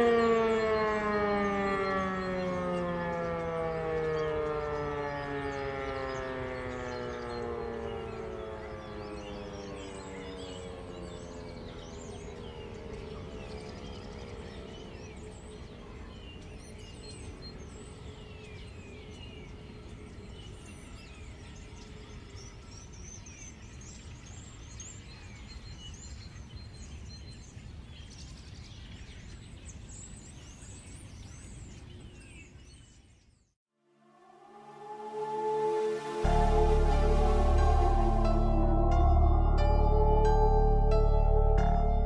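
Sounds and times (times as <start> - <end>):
motor siren winding down: 0.0 - 15.9, 34.0 - 42.0
birds chirping: 0.0 - 33.4.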